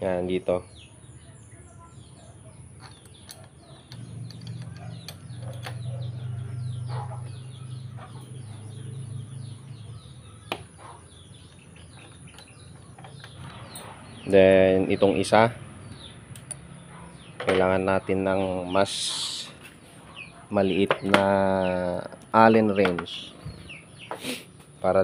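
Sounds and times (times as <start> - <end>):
small birds chirping: 0.0 - 25.0
metal clicks of bolts and wrench: 2.8 - 5.9.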